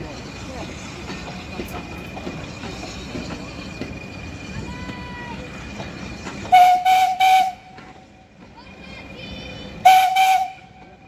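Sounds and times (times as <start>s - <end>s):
rumble of passing train: 0.0s - 11.0s
steam locomotive whistle blasts: 6.5s - 7.7s, 9.8s - 10.8s.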